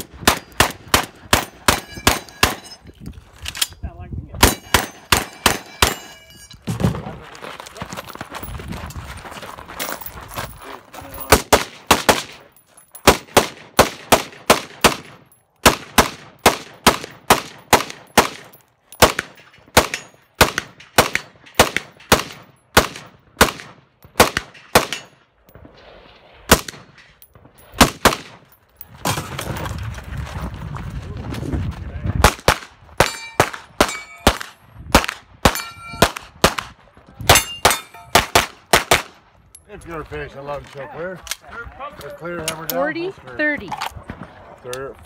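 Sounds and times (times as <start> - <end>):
rifle shots: 0.0 - 2.7, 4.4 - 6.0, 11.3 - 12.4, 13.0 - 25.2, 26.5 - 27.0, 27.8 - 28.5, 32.2 - 39.2.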